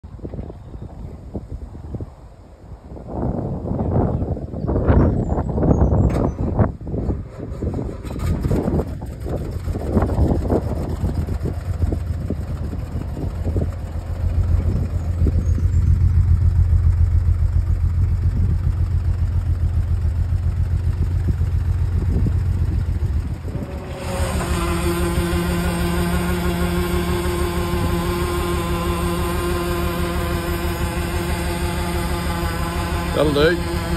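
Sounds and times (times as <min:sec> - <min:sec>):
truck engine running: 0:06.6 - 0:33.9
hydraulic hoist whine: 0:22.7 - 0:33.9.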